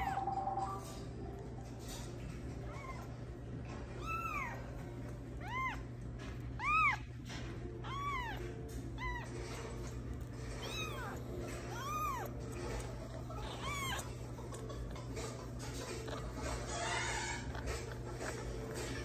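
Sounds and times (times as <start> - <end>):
kitten mewing: 3.9 - 6.0, 6.6 - 7.2, 7.8 - 9.8, 10.5 - 14.9.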